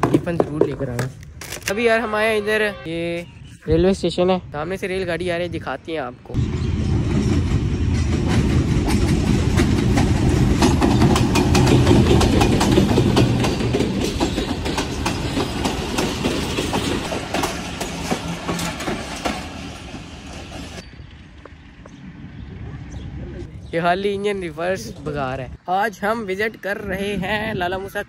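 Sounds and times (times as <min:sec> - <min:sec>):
diesel locomotive rumble: 0:06.3 - 0:23.6
train wheels clattering over rail joints: 0:07.2 - 0:20.8.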